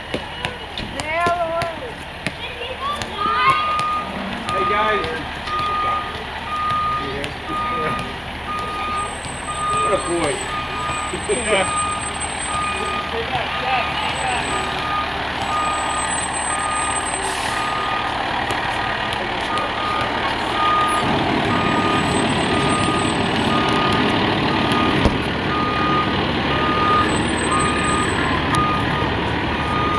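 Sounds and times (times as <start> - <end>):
diesel engine: 0.0 - 29.9
reverse alarm beeping: 3.2 - 18.1, 19.5 - 29.9.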